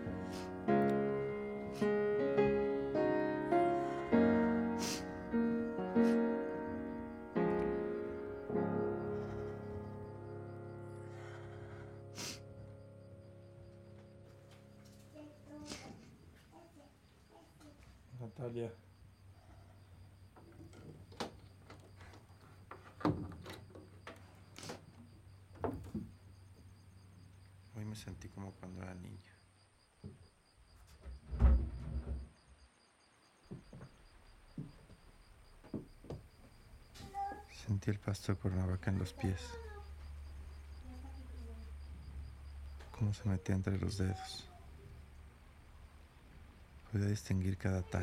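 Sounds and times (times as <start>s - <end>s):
soft piano chords: 0.0s - 15.6s.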